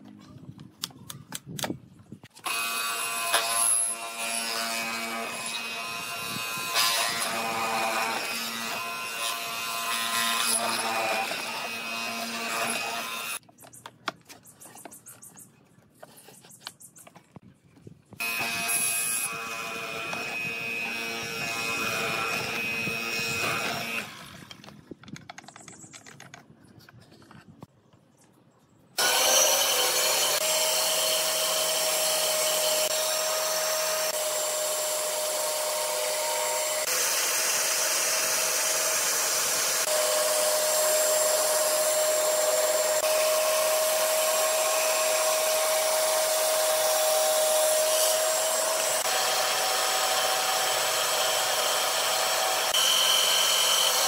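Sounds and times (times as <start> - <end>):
mortising machine motor whine: 18.2 - 24.4.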